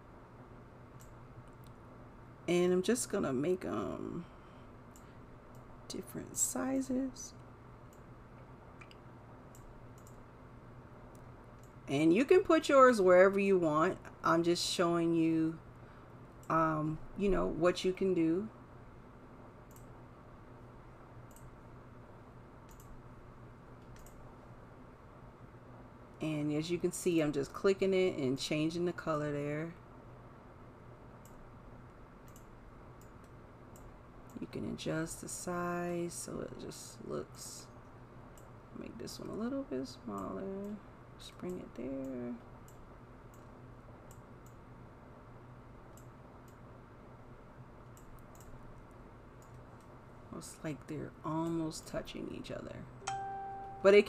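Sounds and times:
low steady hum: 0.0s - 54.0s
computer mouse buttons clicking: 8.8s - 10.2s, 19.7s - 19.9s, 22.7s - 23.0s, 23.8s - 24.2s, 32.2s - 34.4s, 47.8s - 48.6s.

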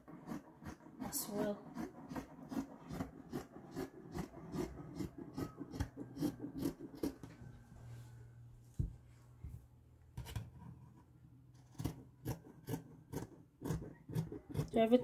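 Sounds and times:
scissors cutting fabric: 0.0s - 7.3s, 11.6s - 14.8s.

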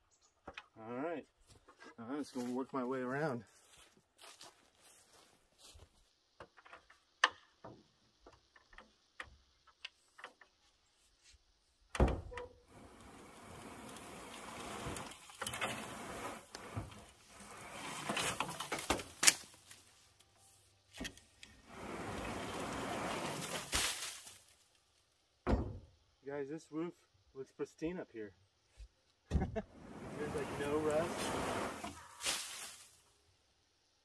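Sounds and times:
rake scraping metal roof: 12.7s - 19.8s, 21.6s - 24.4s, 29.8s - 33.0s.

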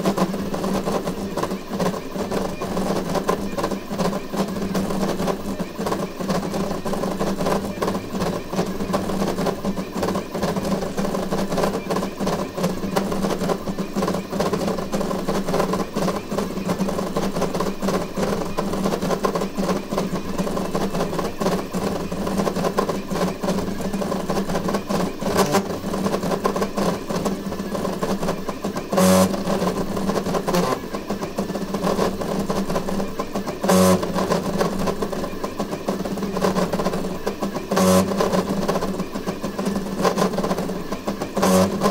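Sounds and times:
stepper motors buzzing and whining: 28.8s - 29.5s, 41.4s - 41.9s.

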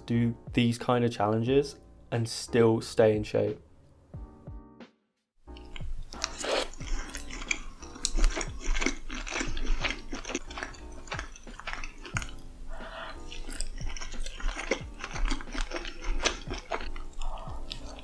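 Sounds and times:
soft background music: 0.0s - 18.0s
chewing with mouth clicks: 5.5s - 18.0s.

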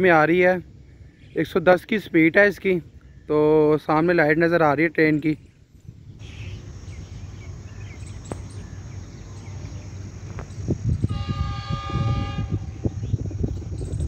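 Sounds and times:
diesel locomotive rumble: 0.0s - 14.0s
multi-tone train horn blast: 11.0s - 13.1s.

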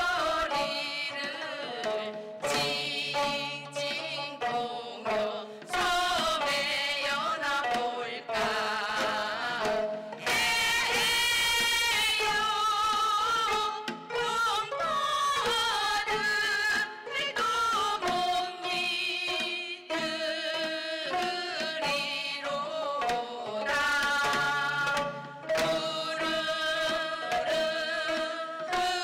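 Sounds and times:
plucked zither strings: 0.0s - 20.6s
woman singing with vibrato: 0.0s - 29.0s.

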